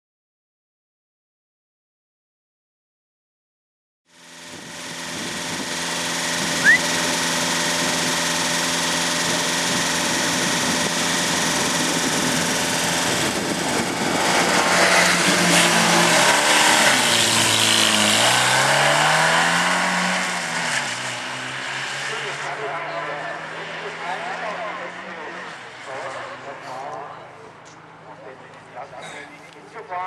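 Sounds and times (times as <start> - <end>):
car engine revving: 4.2 - 26.7
high rising chirp: 6.5 - 7.3.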